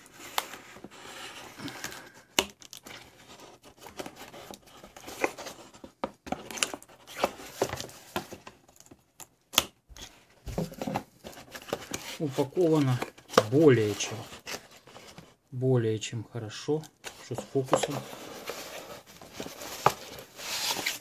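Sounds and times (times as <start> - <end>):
cardboard tearing and rustling: 17.2 - 21.0.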